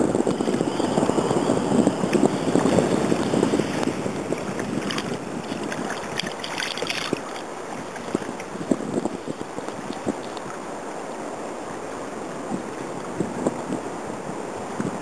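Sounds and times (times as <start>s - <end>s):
wind and water rushing: 0.0s - 15.0s
fish splashing at surface: 3.0s - 8.4s.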